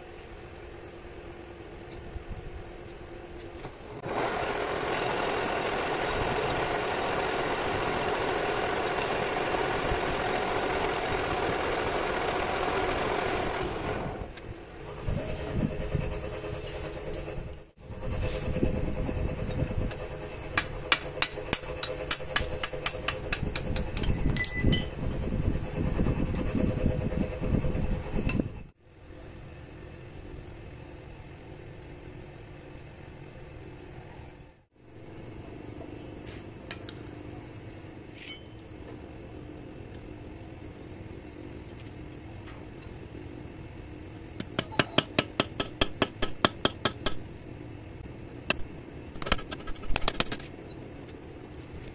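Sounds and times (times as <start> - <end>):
hammer tapping on metal rod: 44.4 - 47.2.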